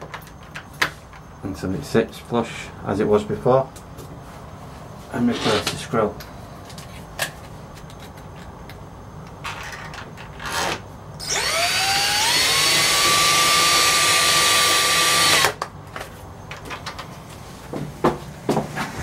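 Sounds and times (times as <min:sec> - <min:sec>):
cordless drill whining: 0:11.2 - 0:15.6.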